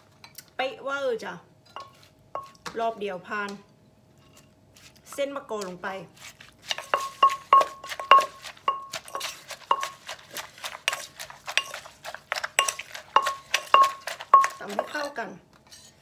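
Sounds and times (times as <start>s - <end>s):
plastic spoon mixing: 6.1s - 15.2s
wooden pestle pounding in mortar: 6.6s - 15.1s.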